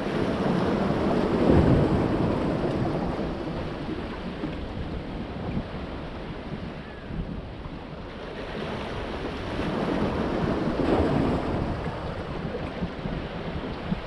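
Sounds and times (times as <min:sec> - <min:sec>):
waves breaking on rocks: 0:00.0 - 0:05.8.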